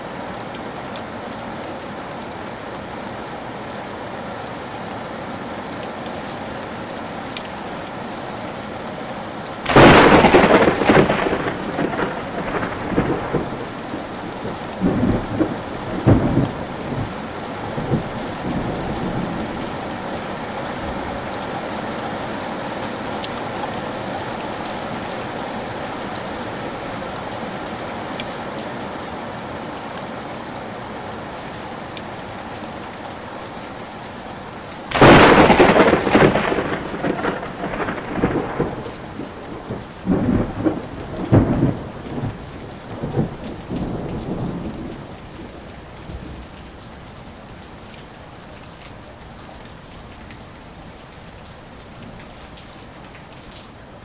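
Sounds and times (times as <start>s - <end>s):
rain falling: 0.0s - 54.0s
loud thunderclap: 9.7s - 13.7s, 34.9s - 42.3s
thunder rumbling: 9.7s - 19.6s, 34.9s - 46.6s.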